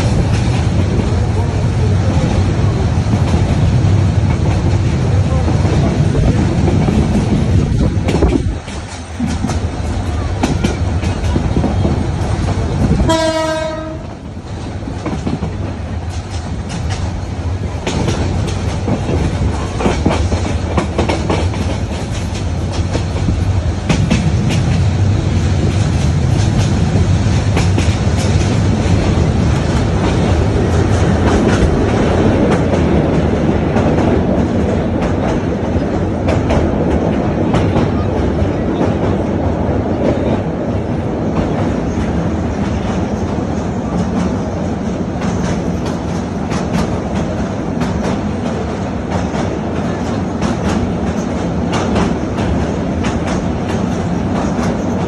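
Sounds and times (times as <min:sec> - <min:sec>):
train rumble: 0:00.0 - 0:55.0
wheels clicking over rail joints: 0:02.2 - 0:24.9
train horn blast: 0:13.0 - 0:14.2.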